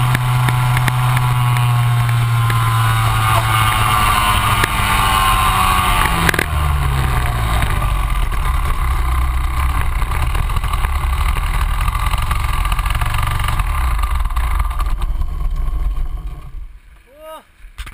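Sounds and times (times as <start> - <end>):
kart engine running: 0.0 - 16.8.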